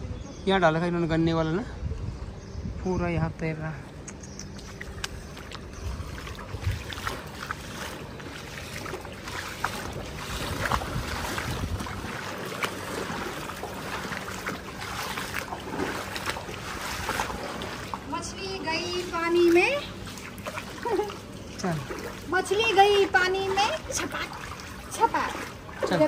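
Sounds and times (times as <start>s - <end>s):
wind on microphone: 1.5s - 3.5s, 4.5s - 7.4s, 9.8s - 13.7s
footsteps splashing through water: 4.4s - 26.0s.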